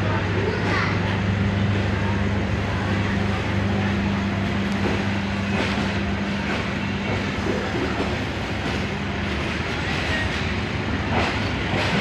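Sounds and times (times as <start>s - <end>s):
train wheels rolling: 3.0s - 12.0s.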